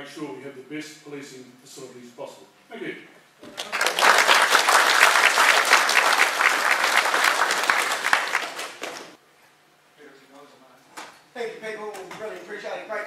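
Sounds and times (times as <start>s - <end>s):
audience applauding: 3.5s - 9.2s.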